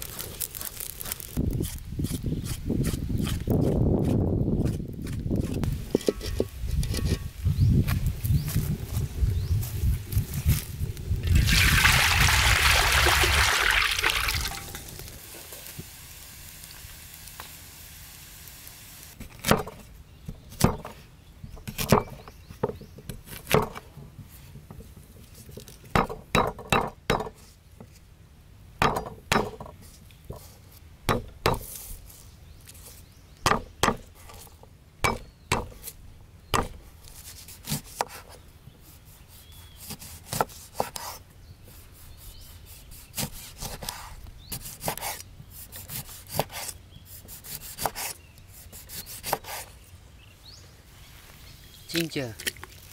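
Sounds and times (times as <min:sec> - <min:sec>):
loud hiss: 0:11.4 - 0:19.2.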